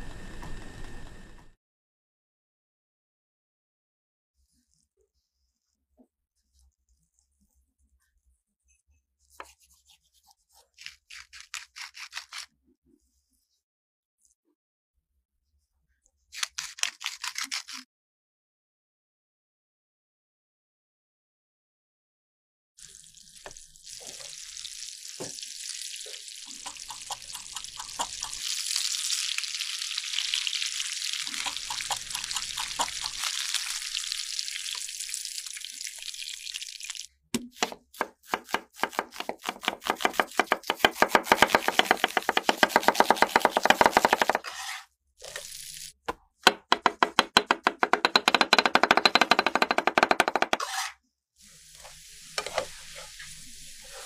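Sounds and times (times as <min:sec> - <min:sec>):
fish sizzling in a pan: 0:22.8 - 0:37.1, 0:51.4 - 0:54.0
knife chopping on wooden board: 0:37.4 - 0:44.8, 0:46.5 - 0:50.9.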